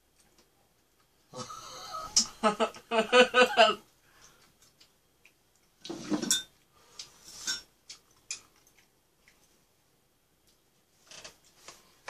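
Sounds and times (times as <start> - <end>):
spoon and chopsticks clinking: 6.2 - 6.5.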